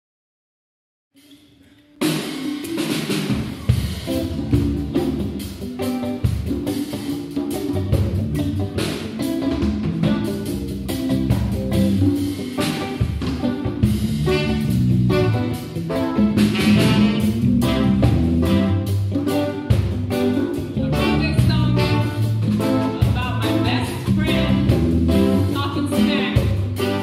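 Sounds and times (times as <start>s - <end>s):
live band playing: 1.2s - 27.0s.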